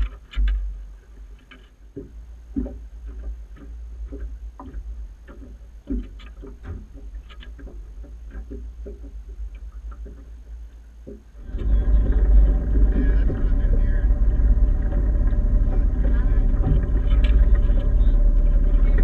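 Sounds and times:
low steady rumble: 0.0s - 19.0s
knocks and taps on boat hull: 1.5s - 11.7s.

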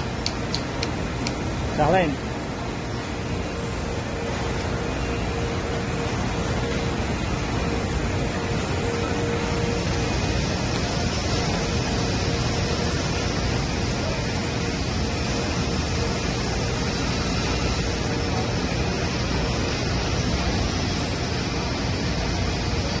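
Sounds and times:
machine hiss: 6.8s - 23.0s.

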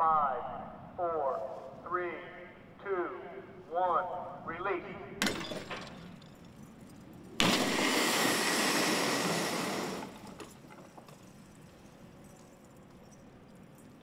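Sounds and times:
helicopter crash impact: 7.4s - 10.4s.

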